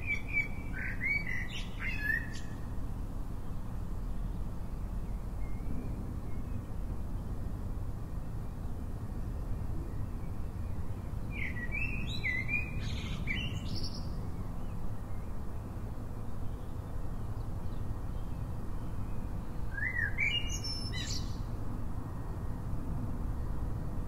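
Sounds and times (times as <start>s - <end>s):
songbird chirping: 0.0s - 2.6s, 9.9s - 15.6s, 16.4s - 21.5s.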